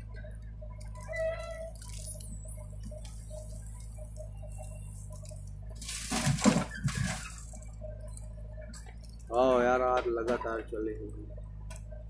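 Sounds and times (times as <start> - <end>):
diesel engine humming: 0.0 - 12.0
soil pouring into steel trolley: 5.8 - 7.4.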